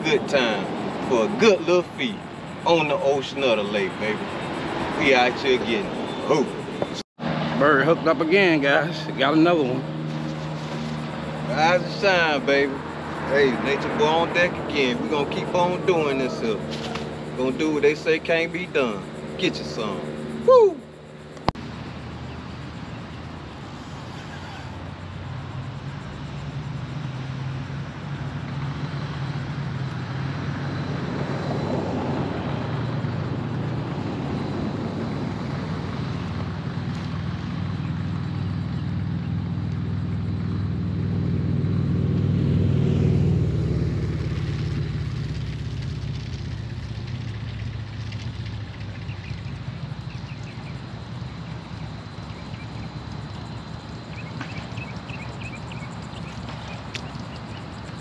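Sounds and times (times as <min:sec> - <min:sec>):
engine passing: 0:00.0 - 0:58.0.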